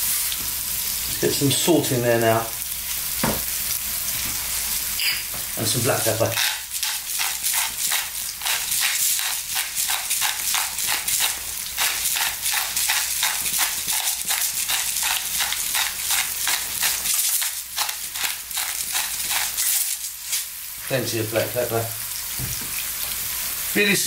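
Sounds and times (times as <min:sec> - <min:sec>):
onions sizzling in oil: 0:00.0 - 0:24.0
pepper mill grinding: 0:06.0 - 0:20.5.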